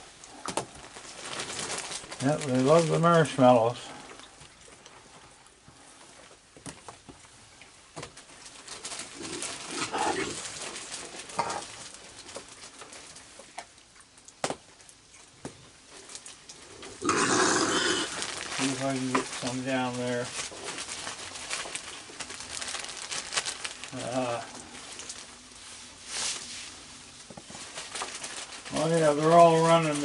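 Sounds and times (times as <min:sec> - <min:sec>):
raccoons cooing churrs: 0:17.0 - 0:18.2
loud rustling: 0:17.7 - 0:26.8.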